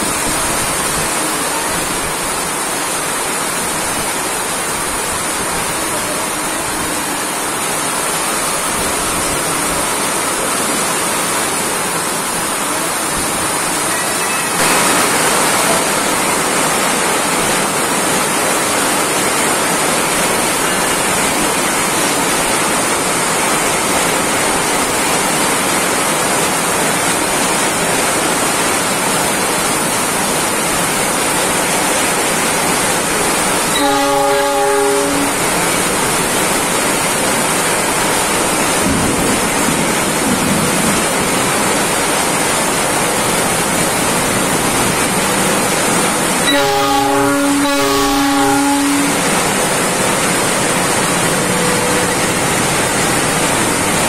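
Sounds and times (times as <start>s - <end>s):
heavy rain pouring: 0.0s - 54.0s
locomotive horn: 33.6s - 35.9s, 46.4s - 50.0s, 51.2s - 52.8s.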